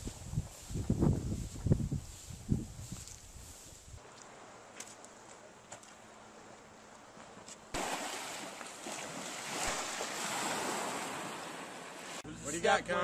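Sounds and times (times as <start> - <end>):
lake waves washing on shore: 4.0 - 12.2.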